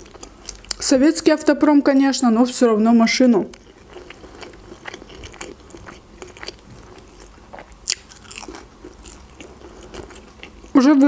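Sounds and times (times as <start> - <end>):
chewing crunchy fried food: 0.0 - 0.8, 3.5 - 10.8.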